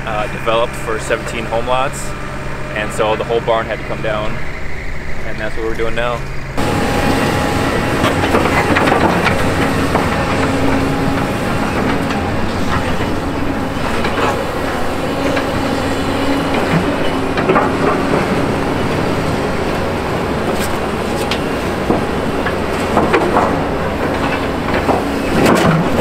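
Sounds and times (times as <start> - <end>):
diesel engines running: 0.0 - 26.0.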